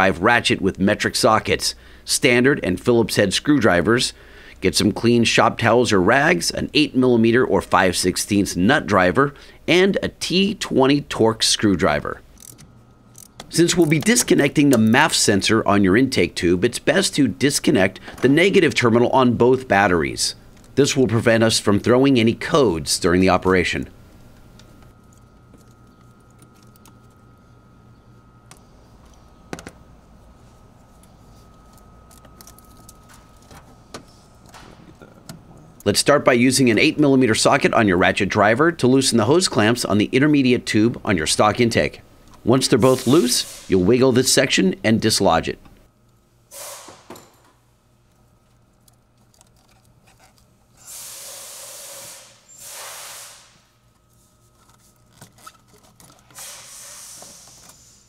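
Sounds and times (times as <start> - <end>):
quiet shop hum: 0.0 - 58.0.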